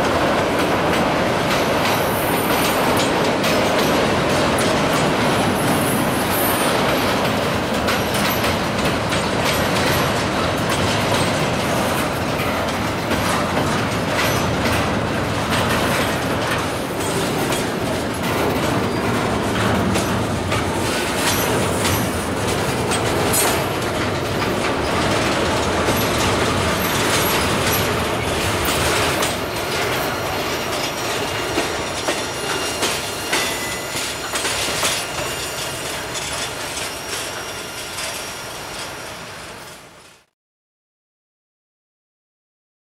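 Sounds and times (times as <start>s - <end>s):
wheels clicking over rail joints: 0.0s - 39.0s
freight cars rolling on rails: 0.0s - 40.2s
high wheel squeal: 5.6s - 7.1s, 32.2s - 39.8s.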